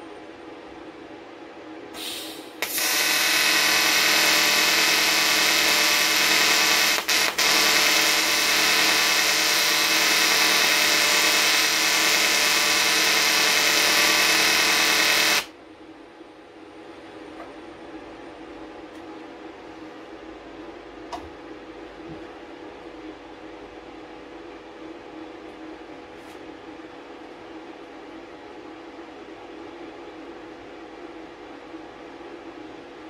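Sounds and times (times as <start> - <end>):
welding arc hiss: 2.0 - 15.5
welding arc buzzing: 2.3 - 15.5.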